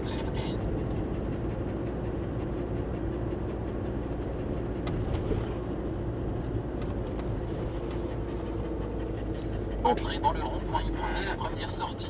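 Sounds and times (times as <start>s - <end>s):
engine and road rumble in cab: 0.0s - 12.0s.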